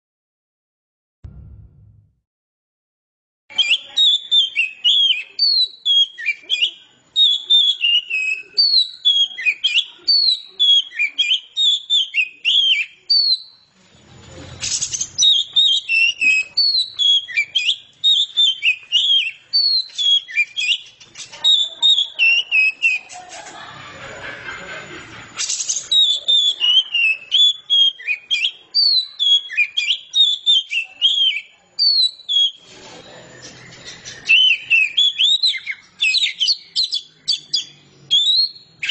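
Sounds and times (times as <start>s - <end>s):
burst of noise: 1.2s - 2.2s
bird singing high whistles: 3.5s - 13.6s, 14.6s - 23.1s, 25.4s - 38.9s.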